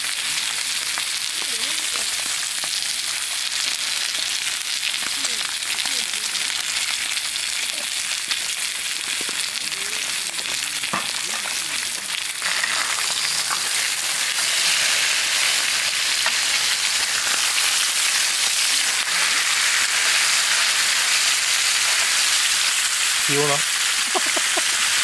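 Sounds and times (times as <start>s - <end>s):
meat sizzling in a pan: 0.0s - 25.0s.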